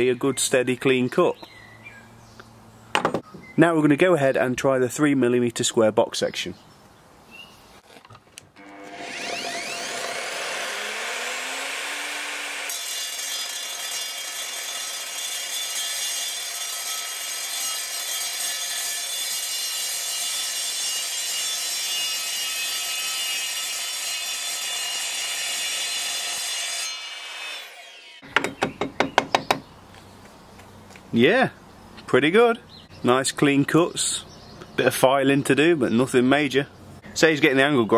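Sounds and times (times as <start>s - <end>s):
sharp knocks: 2.9s - 3.5s, 28.2s - 29.7s
saw motor whine: 8.6s - 15.2s
saw blade screeching through steel: 8.6s - 28.2s.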